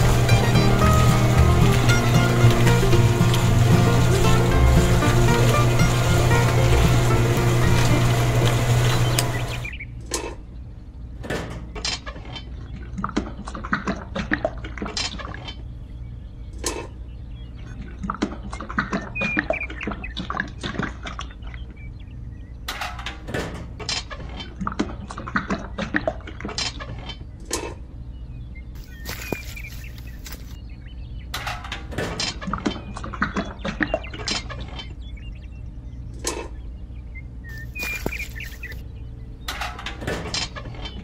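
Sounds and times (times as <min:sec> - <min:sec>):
wet concrete being poured: 0:00.0 - 0:09.7
steady low hum: 0:00.0 - 0:14.9, 0:27.1 - 0:41.0
concrete scraped and patted by hand: 0:28.8 - 0:30.6, 0:37.5 - 0:38.8.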